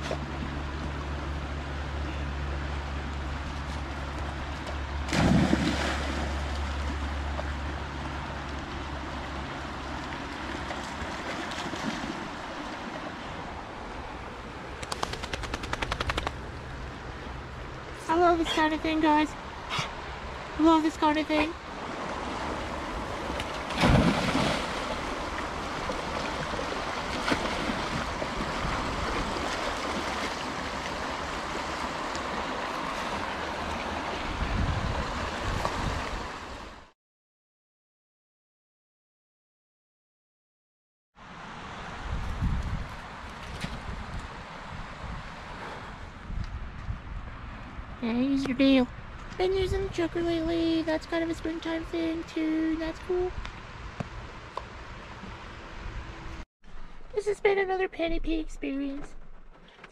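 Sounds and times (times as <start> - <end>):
dog splashing into river: 5.0 - 7.1, 10.2 - 13.0, 23.2 - 34.1
river rushing: 21.6 - 36.9
wind rumble on microphone: 21.8 - 36.9, 41.4 - 51.3.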